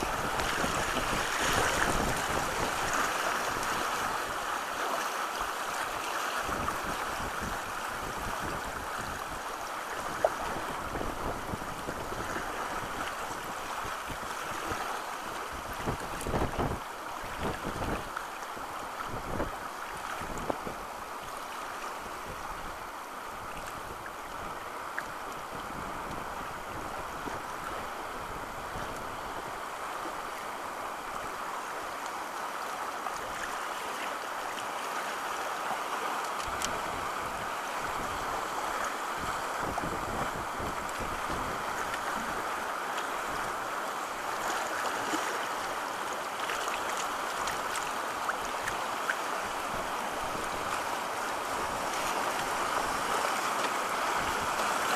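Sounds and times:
wind buffeting microphone: 0:00.0 - 0:04.2, 0:06.4 - 0:14.3, 0:15.5 - 0:18.1, 0:19.0 - 0:20.9, 0:39.2 - 0:42.4
fast water rushing: 0:00.0 - 0:54.9.

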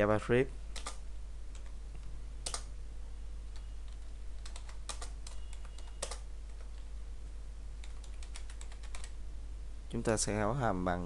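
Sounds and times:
keyboard keystroke clicks: 0:00.8 - 0:01.0.

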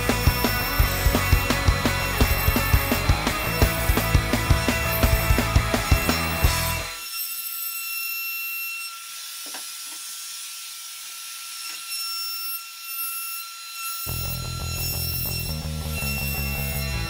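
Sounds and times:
thin even whine: 0:00.0 - 0:09.1, 0:13.0 - 0:17.0.

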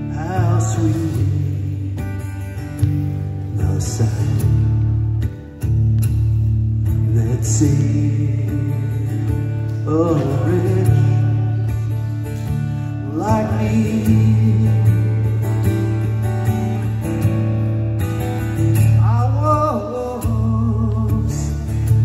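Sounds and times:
man singing: 0:00.0 - 0:02.8, 0:03.4 - 0:05.0, 0:06.9 - 0:12.2, 0:12.8 - 0:16.4, 0:18.7 - 0:22.0
strummed acoustic guitar: 0:00.0 - 0:22.0.

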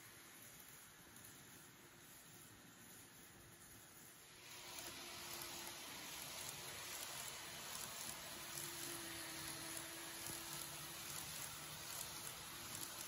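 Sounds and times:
faint motor whine: 0:00.0 - 0:13.0
model train rolling hiss: 0:00.0 - 0:13.0.

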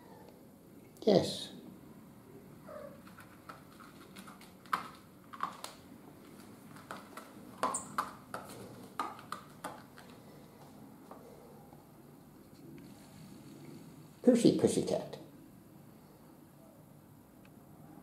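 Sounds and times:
kitten claws scratching doormat: 0:02.9 - 0:10.2.

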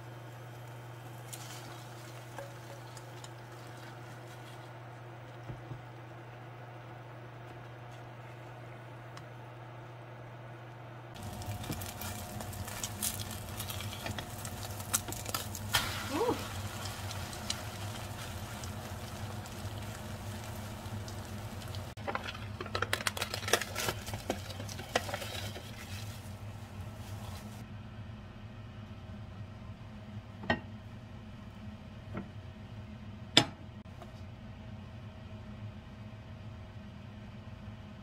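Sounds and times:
low hum: 0:00.0 - 0:33.7
food sizzling in a frying pan: 0:00.1 - 0:04.1, 0:11.2 - 0:22.0.

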